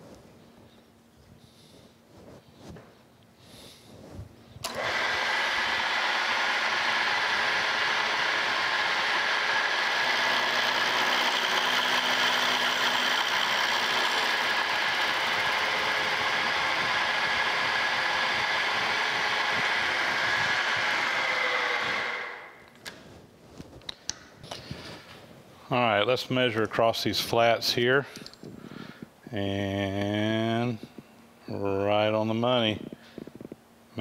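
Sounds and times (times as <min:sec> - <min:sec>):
milling machine cutting metal: 0:04.6 - 0:22.5
machine winding down: 0:04.6 - 0:22.6.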